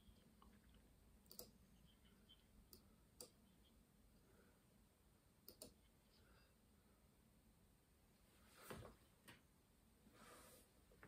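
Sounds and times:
faint sharp clicks: 0:01.2 - 0:01.6, 0:05.4 - 0:05.8.

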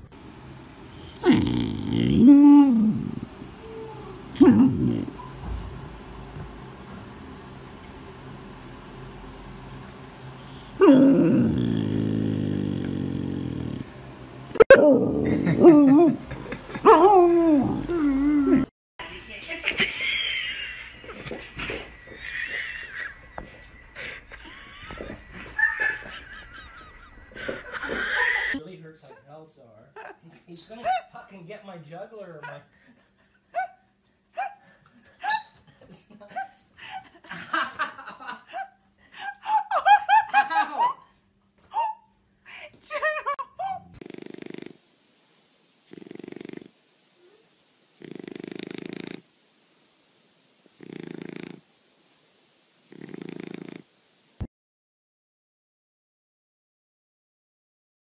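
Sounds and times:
puppy growling and howling: 0:01.0 - 0:05.2, 0:10.6 - 0:13.9, 0:14.6 - 0:18.7
puppy whining: 0:01.2 - 0:05.5, 0:14.6 - 0:18.7, 0:35.2 - 0:35.7
human laughter: 0:15.2 - 0:17.1, 0:19.7 - 0:23.2, 0:24.0 - 0:28.6, 0:35.0 - 0:41.1.

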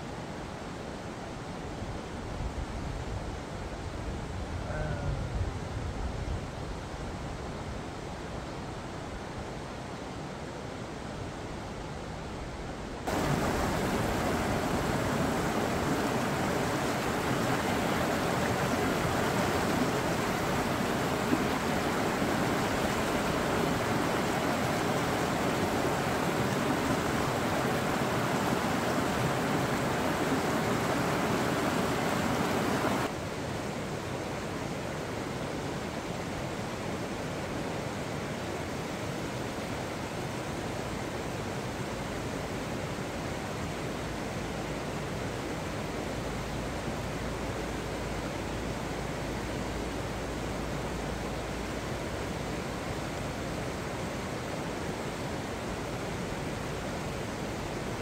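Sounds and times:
stream rushing over rocks: 0:12.9 - 0:58.0.

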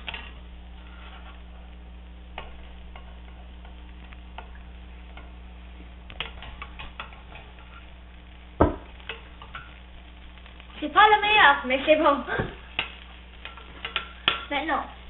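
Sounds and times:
metal spatula scraping a pan: 0:00.0 - 0:01.6, 0:12.6 - 0:14.5
egg sizzling in butter: 0:00.0 - 0:15.0.

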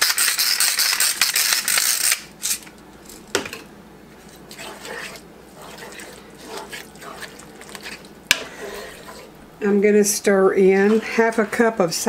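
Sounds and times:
spoon stirring thick mixture: 0:04.1 - 0:12.0.

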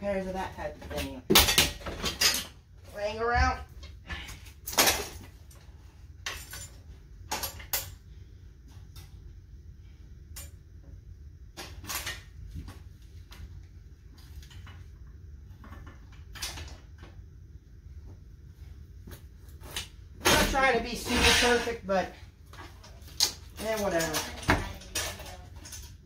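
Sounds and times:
metal bicycle frames clanking: 0:20.2 - 0:21.8.

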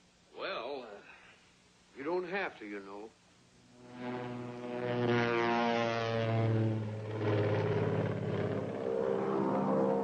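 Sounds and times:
propeller plane engines droning: 0:03.6 - 0:10.0.

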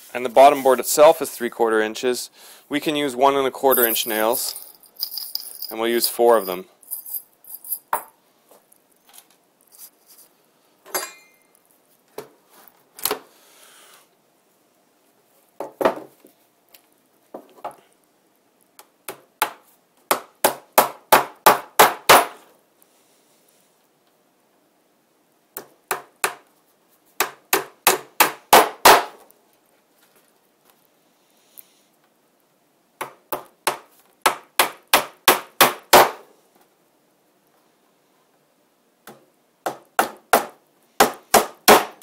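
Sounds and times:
hammer driving nails into wood: 0:19.1 - 0:22.4, 0:27.2 - 0:29.2, 0:33.0 - 0:36.2, 0:39.1 - 0:42.0.

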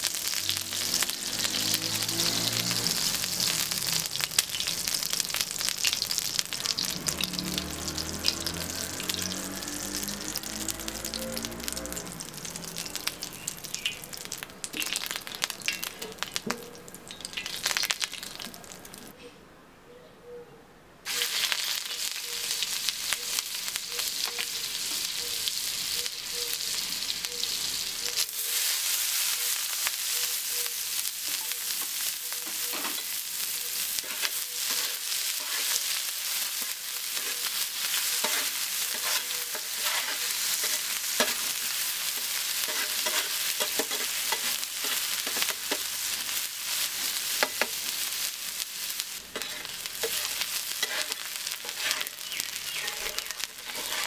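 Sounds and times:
food sizzling on a griddle: 0:00.0 - 0:19.1, 0:21.1 - 0:54.0
metal spatula scraping a griddle: 0:31.2 - 0:47.9, 0:49.3 - 0:54.0.

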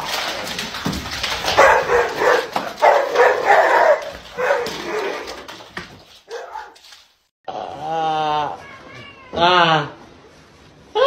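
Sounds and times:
dog barking: 0:01.6 - 0:05.2, 0:06.3 - 0:06.8.

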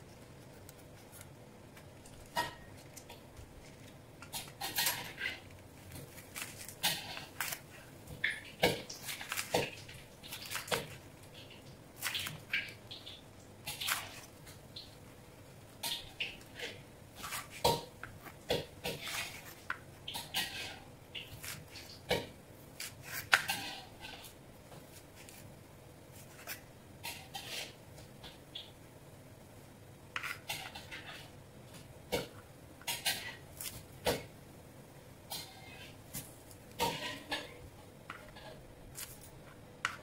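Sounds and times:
knife slicing vegetables: 0:04.3 - 0:11.0, 0:11.9 - 0:12.8, 0:13.6 - 0:14.4, 0:15.8 - 0:25.4, 0:38.1 - 0:40.0.

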